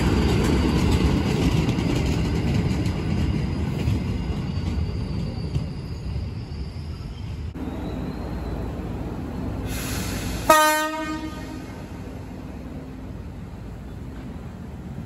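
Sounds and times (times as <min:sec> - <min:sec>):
brief hiss: 0:09.6 - 0:10.6
train horn blast: 0:10.4 - 0:12.0.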